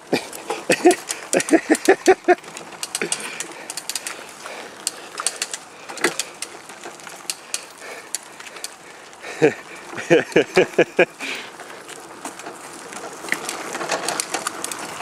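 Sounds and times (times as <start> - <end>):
go-kart rolling on pavement: 0.0 - 15.0
person laughing: 0.1 - 2.4, 9.2 - 11.5
metal chain rattling: 0.1 - 8.7.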